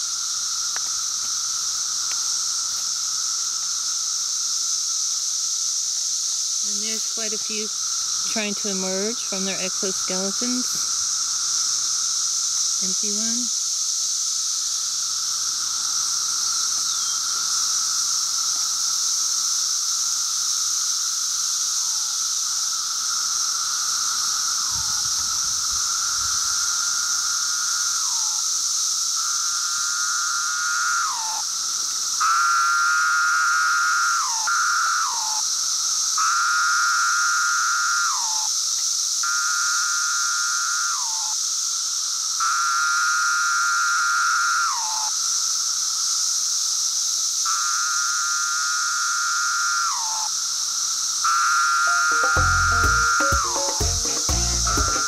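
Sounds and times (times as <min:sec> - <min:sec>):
high-pitched cicada chorus: 0:00.0 - 0:55.0
nearby cicada buzzing call: 0:00.0 - 0:55.0.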